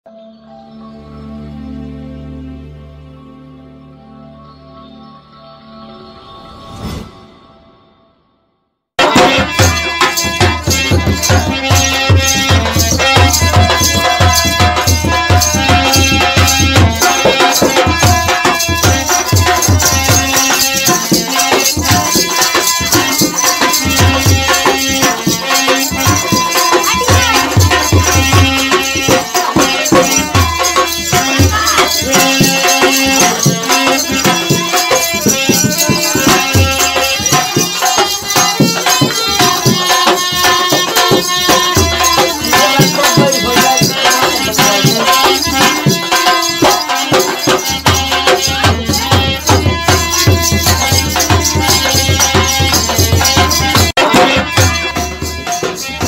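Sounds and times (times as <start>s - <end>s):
devotional folk music: 0.1s - 7.7s, 9.0s - 56.0s
drums and rattling percussion: 9.0s - 56.0s.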